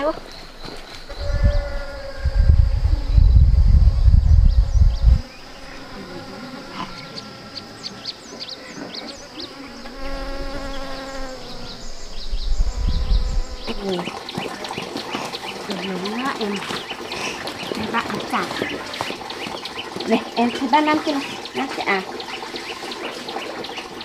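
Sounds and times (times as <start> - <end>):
high insect tone: 0.0 - 24.0
small birds chirping: 0.0 - 24.0
bee buzzing: 1.1 - 17.0
loud low rumble: 1.2 - 5.2.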